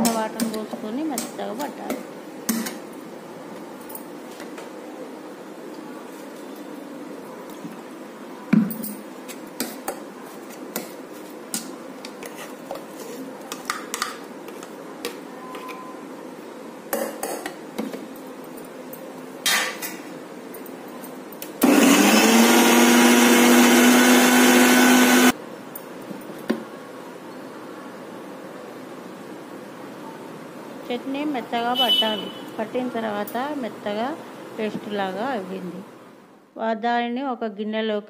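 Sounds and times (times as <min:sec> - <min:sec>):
mixer grinder motor running: 0:21.6 - 0:25.4.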